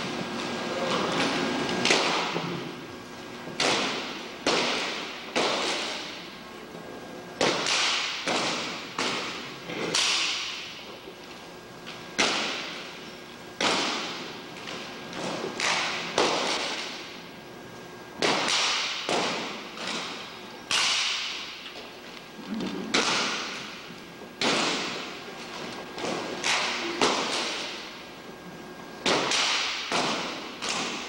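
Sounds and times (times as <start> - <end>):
rifles slapped and struck: 3.5 - 6.3, 7.4 - 10.9, 12.2 - 12.9, 13.6 - 17.1, 18.2 - 21.8, 22.9 - 23.8, 24.4 - 28.0, 29.0 - 31.0.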